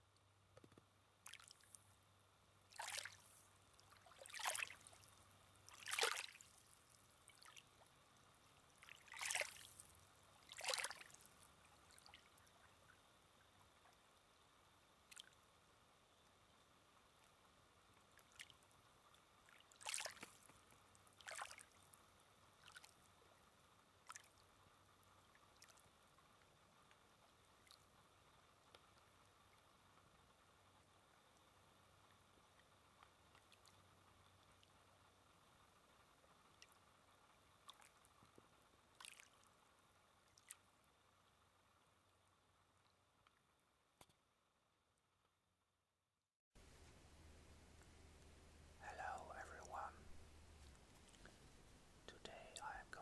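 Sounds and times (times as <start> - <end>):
small waves lapping on shore: 2.7 - 7.9, 8.5 - 12.6, 19.4 - 22.0, 24.0 - 24.4, 39.0 - 39.5.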